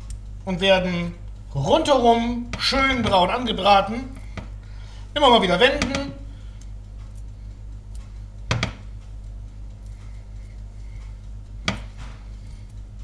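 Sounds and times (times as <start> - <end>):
low steady hum: 0.0 - 13.0
meatballs knocking into frying pan: 8.5 - 8.9, 11.6 - 12.1.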